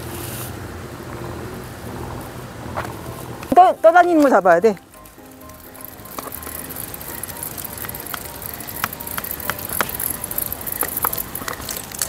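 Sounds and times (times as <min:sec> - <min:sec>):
steady high hiss: 0:00.0 - 0:12.0
fishing reel ticking: 0:04.0 - 0:12.0.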